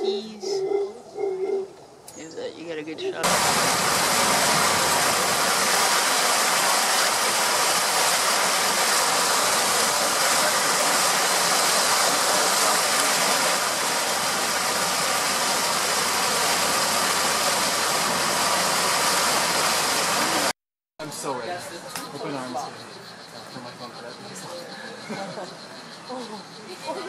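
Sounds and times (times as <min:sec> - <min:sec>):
motorboat engine: 0:03.2 - 0:20.5
rushing water hiss: 0:03.2 - 0:21.3.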